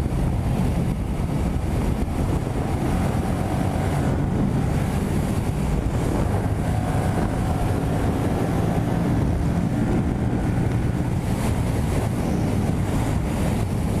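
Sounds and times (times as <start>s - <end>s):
motorcycle engine running: 0.0s - 14.0s
wind rushing over microphone: 0.0s - 14.0s.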